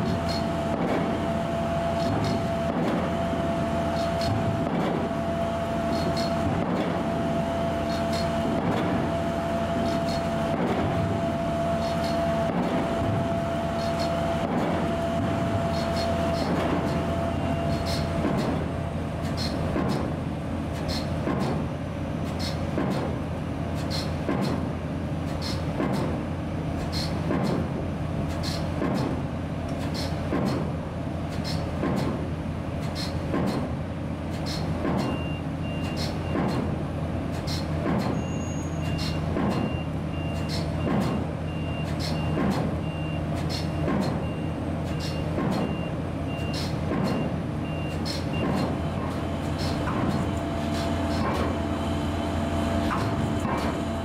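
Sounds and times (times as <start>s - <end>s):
low engine drone: 0.0s - 30.1s, 36.7s - 54.0s.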